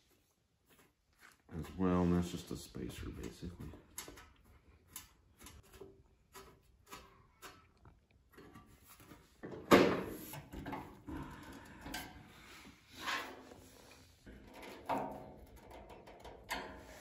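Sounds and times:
small metal clicks and scrapes: 0:00.8 - 0:09.1, 0:13.1 - 0:17.0
metal shelf clattering: 0:14.3 - 0:17.0.

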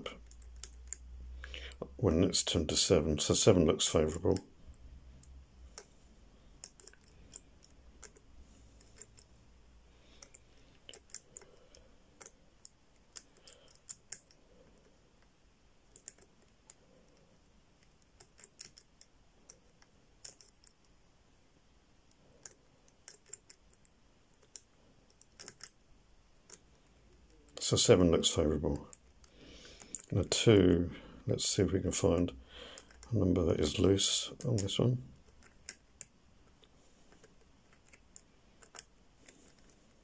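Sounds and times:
padlock number wheels clicking: 0:06.6 - 0:09.3, 0:10.2 - 0:14.9, 0:15.9 - 0:16.8, 0:18.0 - 0:20.8, 0:22.4 - 0:25.8, 0:32.7 - 0:33.1.

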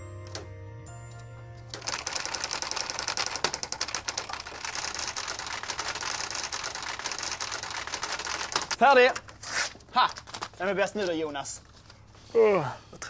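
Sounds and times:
electric typewriter keys clattering: 0:01.7 - 0:09.2.

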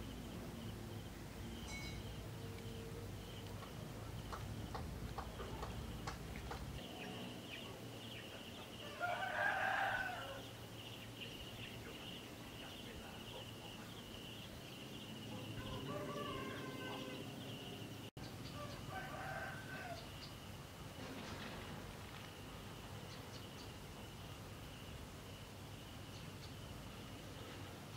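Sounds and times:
high pulsing insect trill: 0:00.0 - 0:27.4
rooster crowing: 0:08.8 - 0:10.6, 0:15.6 - 0:17.8, 0:18.6 - 0:20.1.

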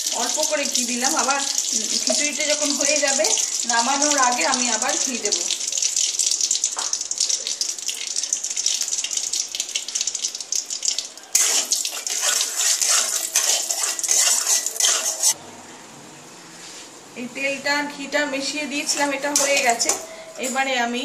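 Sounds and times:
oil sizzling and crackling: 0:00.0 - 0:15.4, 0:18.9 - 0:20.3
metal spatula stirring: 0:11.3 - 0:15.4, 0:18.9 - 0:20.6.

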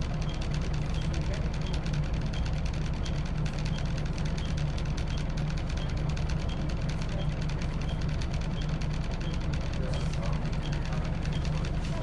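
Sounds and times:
bus diesel engine idling: 0:04.2 - 0:12.0.

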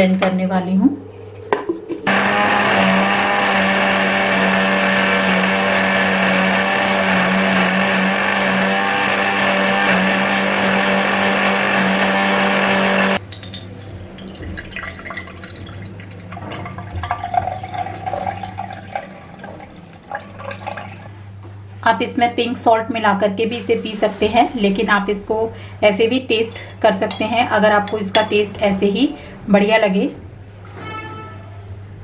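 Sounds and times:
electric blender running: 0:02.0 - 0:13.2
liquid sounds: 0:13.2 - 0:21.2.

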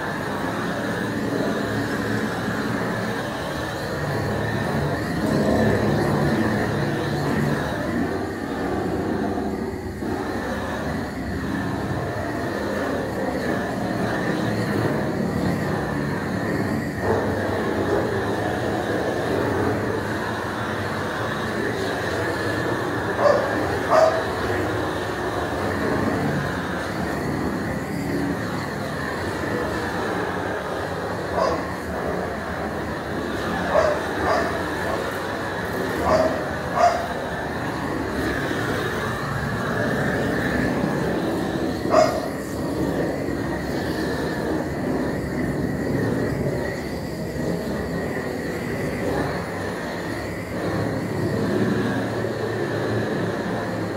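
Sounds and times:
steady noise: 0:00.0 - 0:53.9
steady rushing noise: 0:00.0 - 0:53.9
dog barking: 0:23.2 - 0:24.3, 0:31.4 - 0:31.7, 0:33.7 - 0:34.6, 0:36.0 - 0:37.1, 0:41.9 - 0:42.3.

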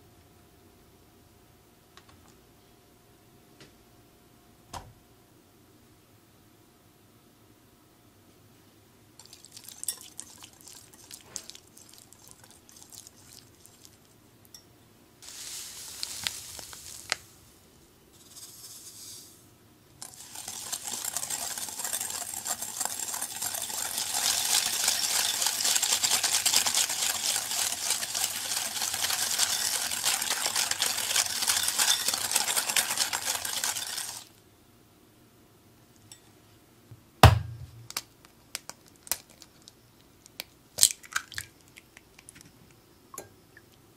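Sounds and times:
whisk tapping glass bowl: 0:09.2 - 0:13.9, 0:20.0 - 0:34.3
sugar being poured: 0:09.2 - 0:14.1, 0:15.2 - 0:17.6, 0:18.2 - 0:19.4, 0:20.0 - 0:34.4
fast whisking against glass: 0:09.2 - 0:14.6, 0:20.0 - 0:34.3.

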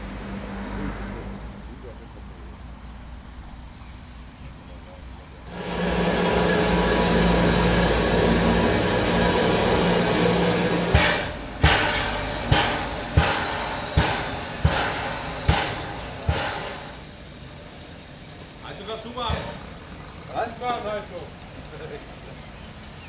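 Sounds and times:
steam locomotive hiss: 0:04.4 - 0:23.0
steam exhaust chuffs: 0:05.3 - 0:23.0
low hum: 0:05.5 - 0:17.1.

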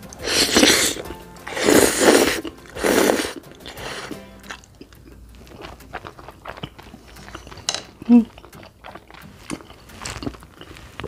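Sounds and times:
wet chewing: 0:00.0 - 0:11.0
loud spaghetti slurp: 0:00.2 - 0:11.0.

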